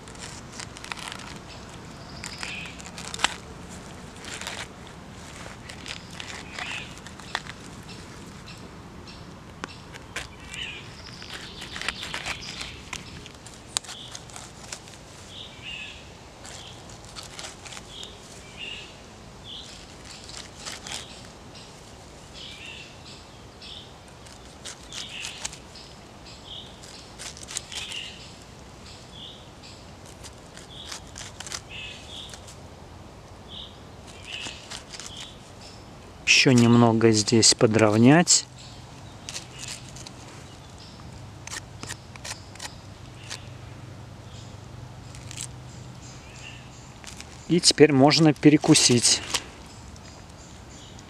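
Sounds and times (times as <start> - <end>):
knife crunching through pineapple rind: 0.0 - 8.6, 9.6 - 15.4, 16.4 - 18.6, 19.5 - 21.3, 24.1 - 25.8, 26.5 - 28.2, 30.0 - 32.6, 34.0 - 35.5, 38.9 - 40.7, 41.4 - 43.6, 45.0 - 50.1
birds chirping: 0.2 - 32.5, 33.4 - 51.0.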